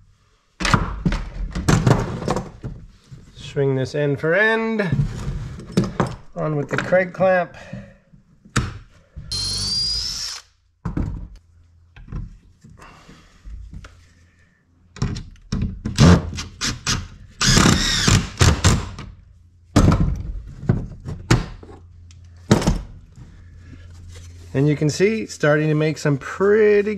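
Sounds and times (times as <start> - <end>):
cordless drill running: 9.3 - 10.5, 16.7 - 18.8.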